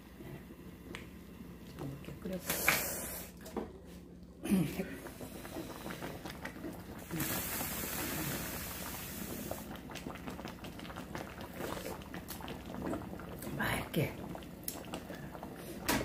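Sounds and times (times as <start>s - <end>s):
soup boiling and bubbling: 0.0s - 16.0s
loud even hiss: 7.1s - 9.6s.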